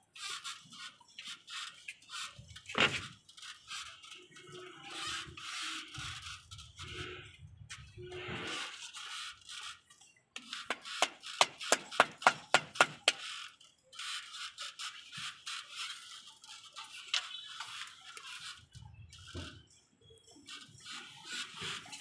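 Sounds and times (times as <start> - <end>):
small clicks: 9.5 - 19.5
sharp taps on moulding: 10.7 - 13.2.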